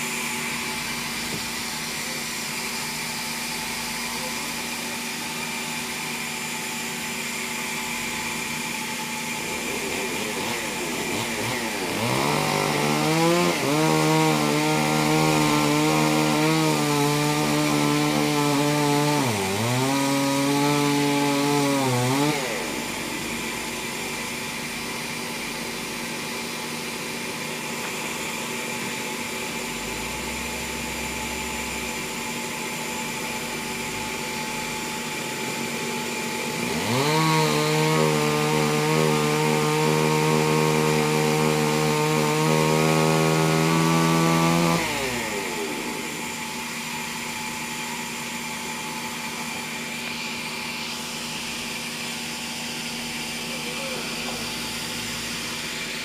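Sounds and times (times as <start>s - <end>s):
chainsaw cutting log: 0.0s - 56.0s.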